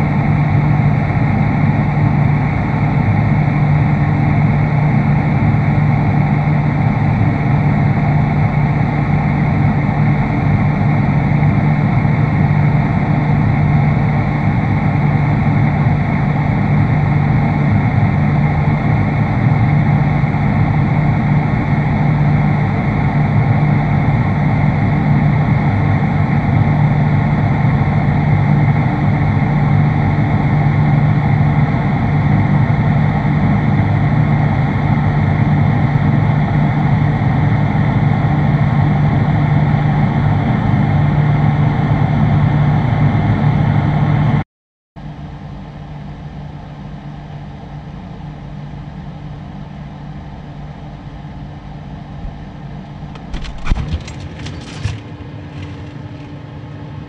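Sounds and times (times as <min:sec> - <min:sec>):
freezer humming: 0:52.1 - 0:56.7.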